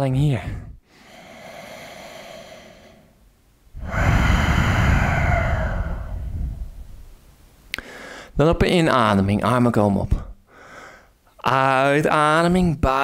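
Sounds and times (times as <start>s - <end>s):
person breathing: 0.4s - 3.2s, 3.8s - 7.0s, 7.7s - 8.4s, 10.4s - 11.2s.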